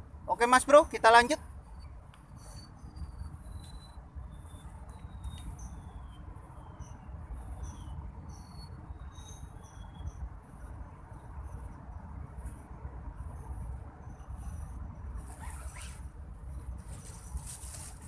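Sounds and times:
thin bird whistles: 0:02.4 - 0:06.1.

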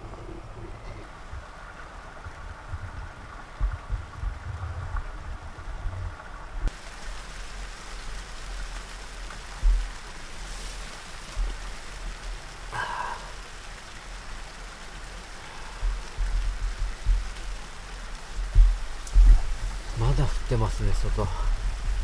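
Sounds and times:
low rumble: 0:00.0 - 0:06.7
snow pattering on tent fabric: 0:06.7 - 0:22.0.

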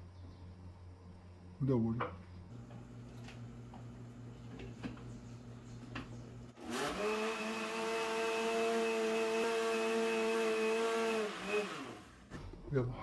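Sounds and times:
blender running: 0:02.5 - 0:12.3.

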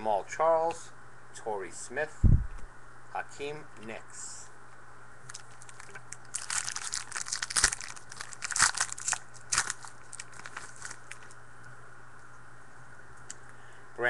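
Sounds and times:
wrapper crinkling and tearing: 0:05.3 - 0:11.4.

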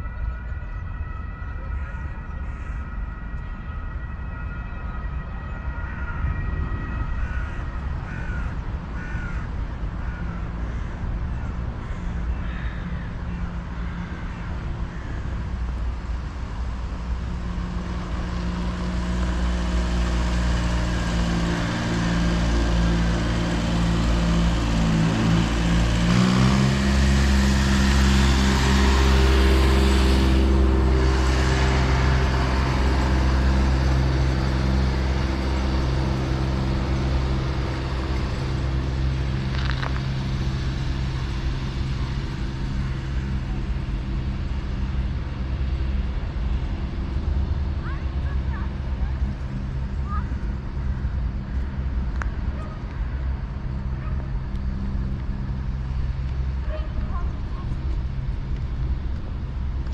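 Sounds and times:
vehicle engine running: 0:00.0 - 0:59.9
birds calling: 0:07.2 - 0:16.1.

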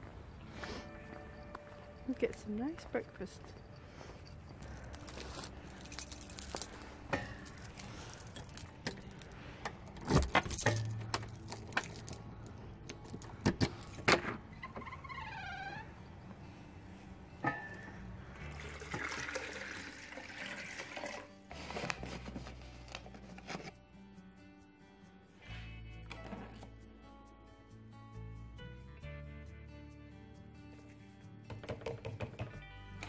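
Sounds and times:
keys jangling: 0:02.7 - 0:14.1.

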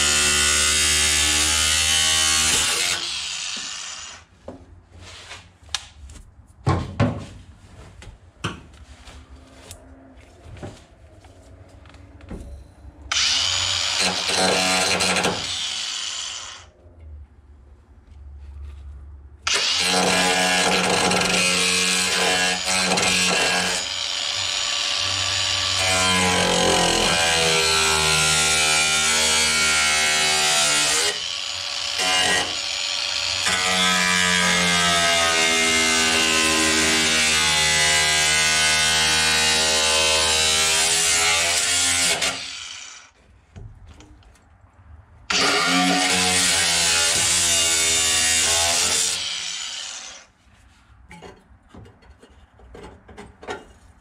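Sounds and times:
angle grinder grinding steel: 0:00.0 - 0:04.3, 0:13.1 - 0:16.7, 0:45.3 - 0:50.3.

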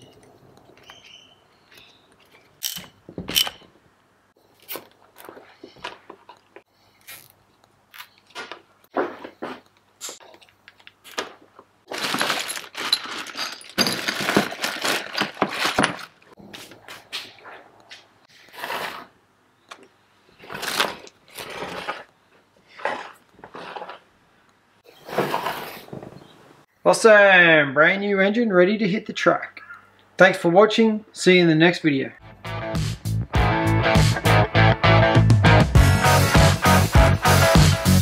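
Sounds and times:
plastic bag crinkling: 0:10.2 - 0:16.3.

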